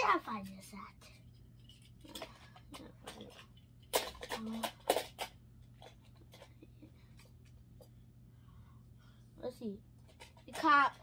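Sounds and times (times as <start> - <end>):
toy cars clattering: 0.0 - 7.6, 10.0 - 11.0.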